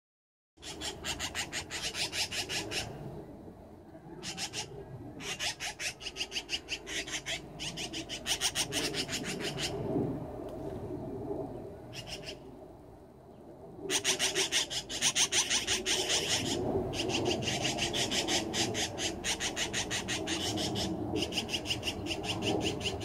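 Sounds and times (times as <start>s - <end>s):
magpies chattering: 0.6s - 3.0s, 4.2s - 9.8s, 11.9s - 12.4s, 13.9s - 23.0s.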